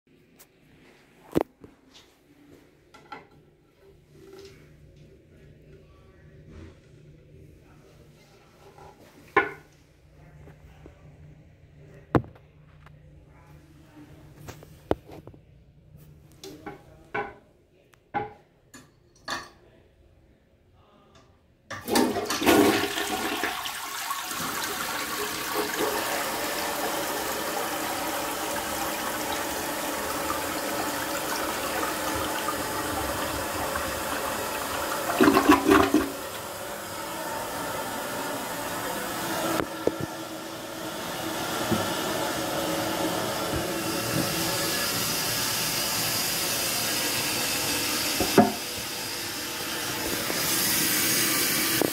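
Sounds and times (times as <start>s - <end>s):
toilet gurgle: 21.7s - 51.9s
water rushing into toilet bowl: 21.7s - 51.9s
steady running water: 21.9s - 51.9s.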